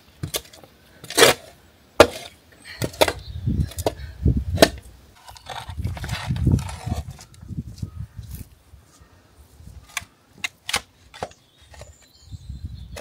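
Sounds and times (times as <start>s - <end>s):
digging tool striking stones and soil: 0.1s - 7.3s.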